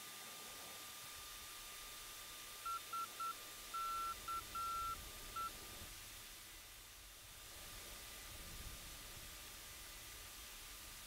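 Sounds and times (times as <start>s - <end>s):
faint steady hum: 0.0s - 11.0s
morse code beeps: 2.7s - 5.5s.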